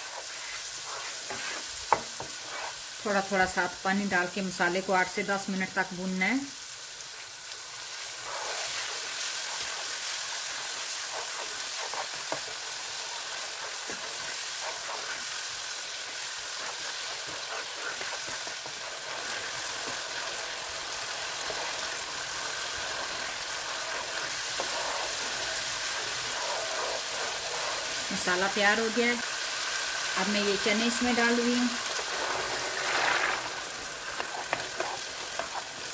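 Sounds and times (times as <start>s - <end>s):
spatula scraping a pan: 0.0s - 3.6s, 7.2s - 35.9s
sauce sizzling in oil: 0.0s - 35.9s
water pouring into pan: 32.0s - 33.9s.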